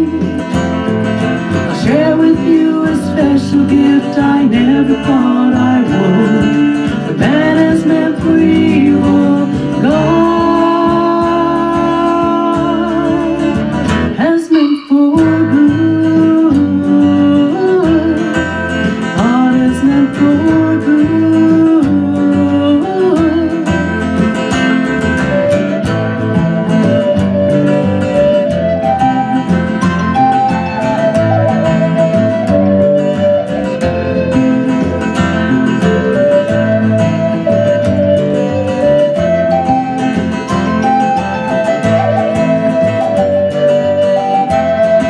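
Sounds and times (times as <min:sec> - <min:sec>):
acoustic guitar: 0:00.0 - 0:45.0
end-blown flute melody: 0:00.0 - 0:45.0
woman singing wordless melody: 0:01.6 - 0:24.1.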